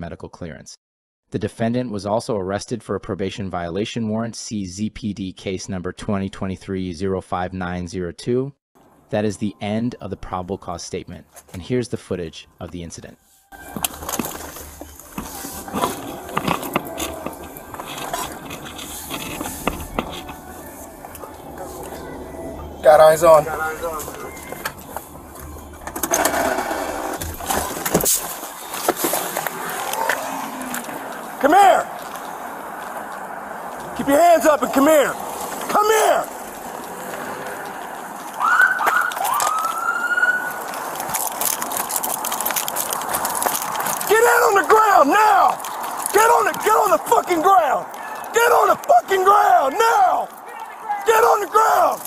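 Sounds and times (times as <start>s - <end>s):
police siren wailing: 13.2s - 27.6s, 29.4s - 35.2s, 37.4s - 40.9s
camera rubbing against clothing: 13.4s - 22.2s
footsteps on pavement: 13.5s - 26.0s, 27.2s - 52.0s.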